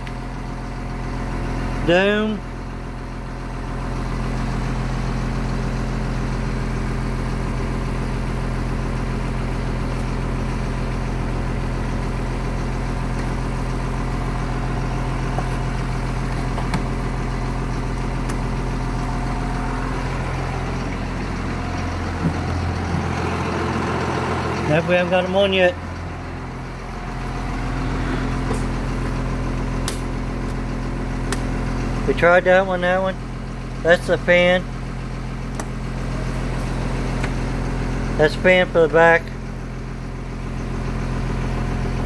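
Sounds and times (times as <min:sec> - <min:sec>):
bus engine idling: 0:00.0 - 0:42.0
toggle switch clicks: 0:29.8 - 0:30.0.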